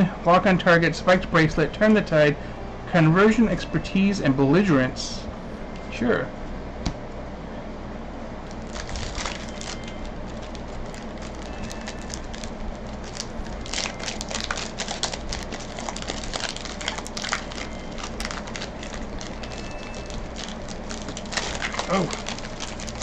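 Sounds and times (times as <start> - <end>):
air conditioner and fan hum: 0.0 - 23.0
foil wrapper crackling: 8.4 - 23.0.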